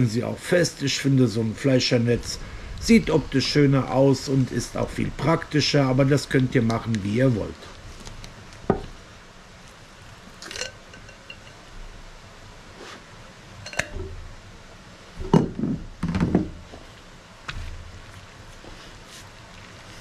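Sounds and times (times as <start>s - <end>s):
plastic netting knocks and clicks: 15.3s - 16.6s.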